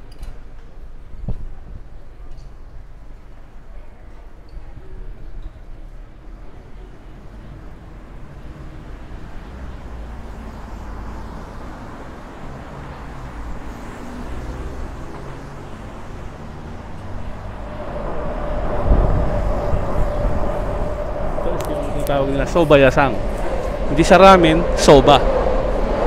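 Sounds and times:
street traffic rumble: 0:00.0 - 0:26.0
vehicle passing close: 0:07.3 - 0:26.0.

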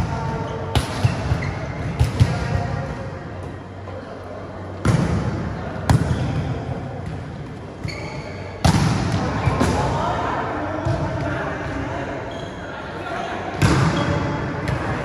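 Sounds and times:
high squeak: 0:07.8 - 0:08.5
volleyball hits echoing: 0:08.6 - 0:10.0.

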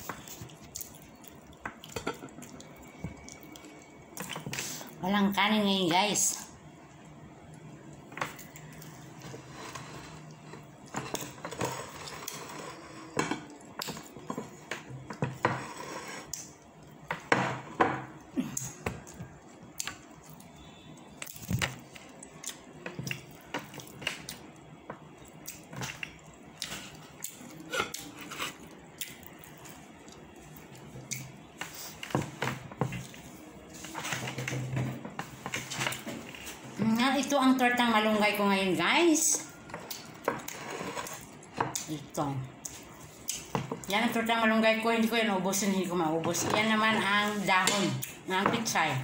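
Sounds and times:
person chewing: 0:00.0 - 0:05.0, 0:18.2 - 0:32.1.

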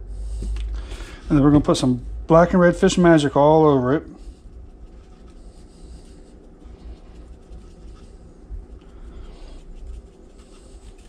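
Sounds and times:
low rumble: 0:00.0 - 0:10.1
seasoning shaken from a shaker: 0:04.2 - 0:11.0.

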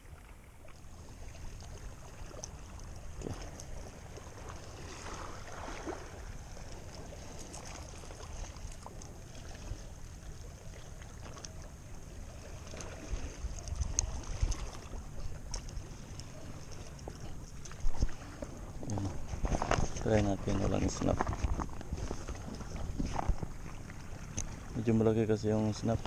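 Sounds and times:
water lapping at rocky shore: 0:00.0 - 0:26.0
wind rumbling on microphone: 0:12.4 - 0:24.9.

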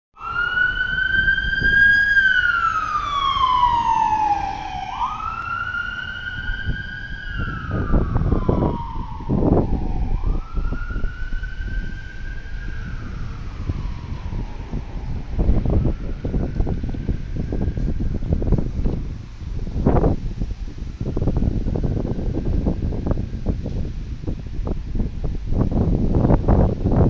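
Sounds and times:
ambulance siren wailing: 0:00.2 - 0:20.1
low rumble: 0:00.3 - 0:23.8.

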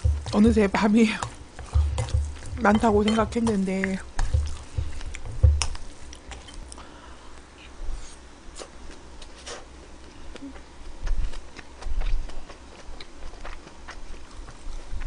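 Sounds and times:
close chewing of food: 0:00.0 - 0:06.8, 0:08.6 - 0:15.0
low thump: 0:04.4 - 0:05.7.

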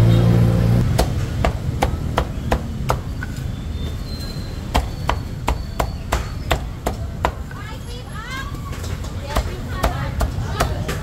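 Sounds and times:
cleaver chopping on wooden block: 0:00.9 - 0:03.4, 0:04.7 - 0:07.6, 0:09.0 - 0:11.0.

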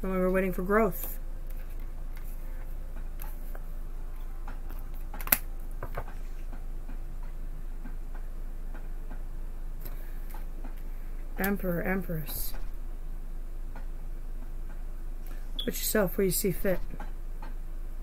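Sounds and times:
low electrical hum: 0:00.0 - 0:18.0
cards being shuffled: 0:04.7 - 0:06.4.

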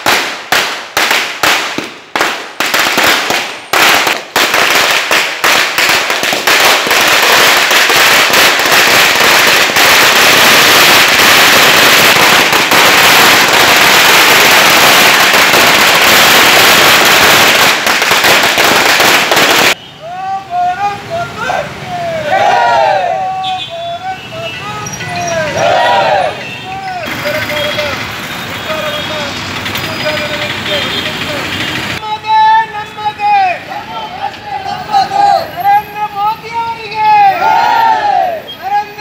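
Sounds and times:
firecrackers banging: 0:00.0 - 0:19.8, 0:26.2 - 0:32.0.

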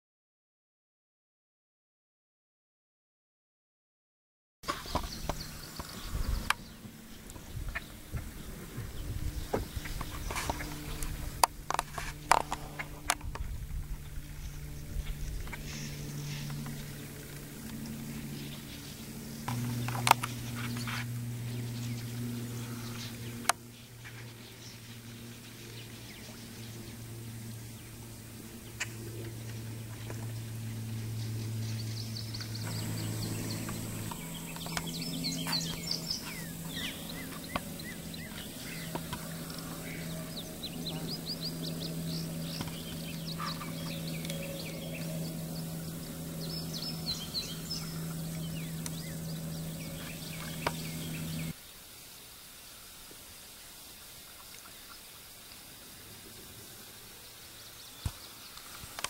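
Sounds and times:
birds chirping: 0:04.7 - 0:51.6
steady low hum: 0:04.7 - 0:51.6.

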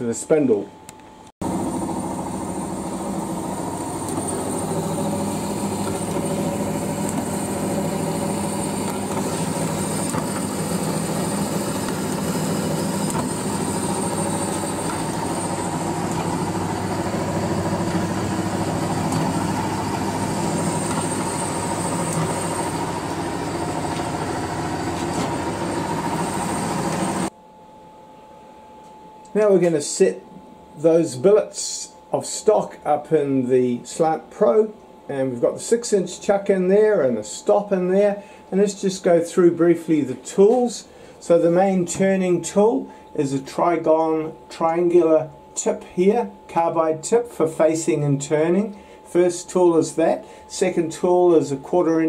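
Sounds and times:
bandsaw cutting metal: 0:01.7 - 0:27.3.

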